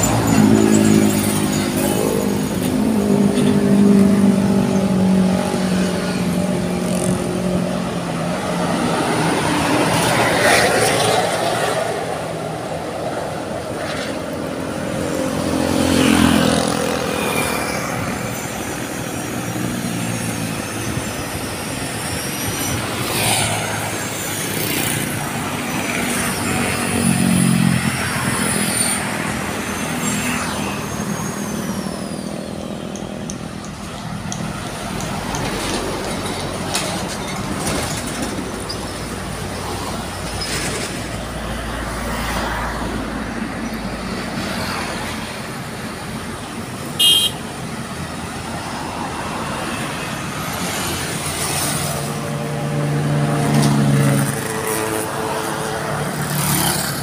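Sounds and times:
truck engines passing: 0.0s - 57.0s
heavy lorry engine rumble: 30.8s - 42.0s.

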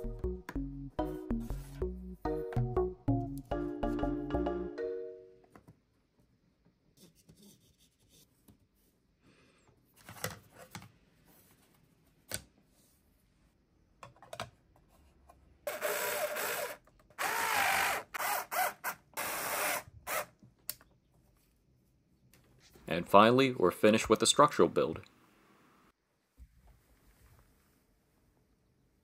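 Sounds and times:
electric screwdriver whirring: 15.7s - 20.3s.

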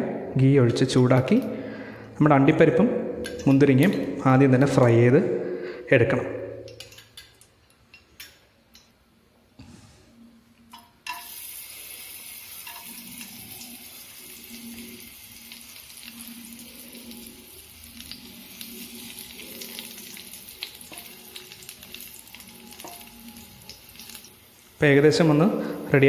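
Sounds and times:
nuts sizzling in hot fat: 11.1s - 26.0s.

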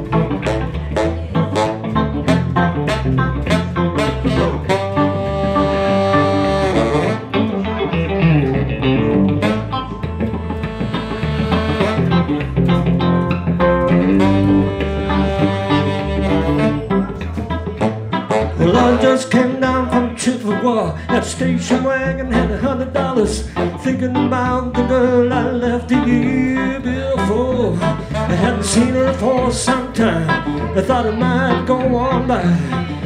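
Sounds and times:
saxophone holding long notes: 0.0s - 8.0s, 8.7s - 21.2s, 23.5s - 29.1s
bass guitar: 0.0s - 33.0s
electric guitar: 0.0s - 33.0s.

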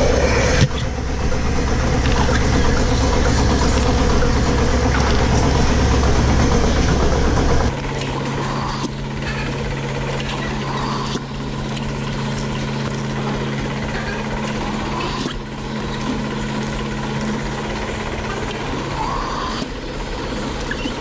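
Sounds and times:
vacuum system hum: 0.0s - 21.0s.

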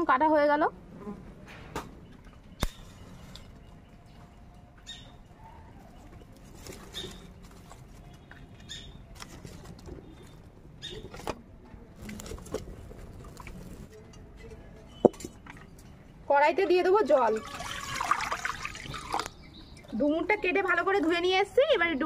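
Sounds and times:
dry leaves rustling and crackling: 6.1s - 8.2s.

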